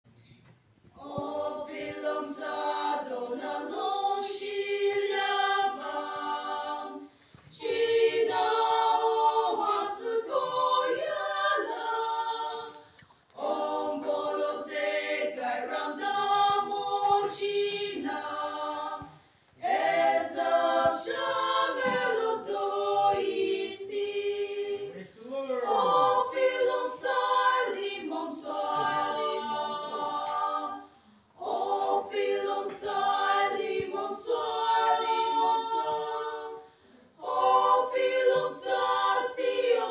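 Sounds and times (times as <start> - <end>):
women singing a cappella: 0.8 - 39.9.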